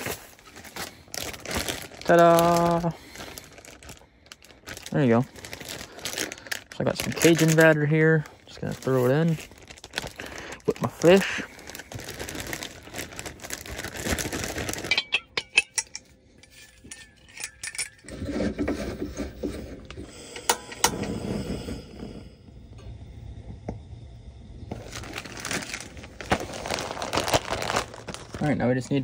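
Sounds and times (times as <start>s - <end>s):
plastic bag rustling: 0.0s - 15.5s, 24.7s - 29.0s
metal clicks and clinks: 14.9s - 18.1s.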